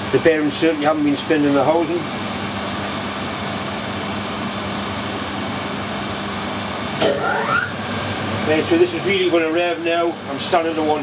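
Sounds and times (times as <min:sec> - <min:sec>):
lathe running with hum: 0:00.0 - 0:11.0
short rising tone: 0:07.0 - 0:07.8.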